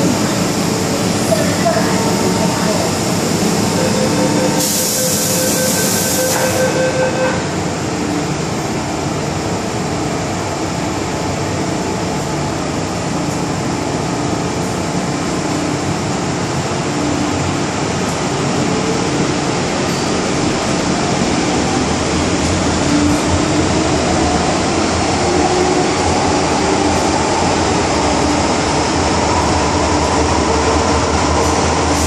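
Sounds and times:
train door warning tone: 0.0s - 8.3s
train running noise: 0.0s - 32.0s
train doors hissing shut: 3.7s - 7.2s.

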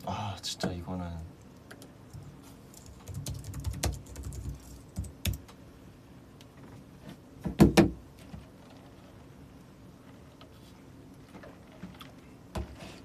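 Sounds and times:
computer keyboard typing: 2.8s - 5.5s.

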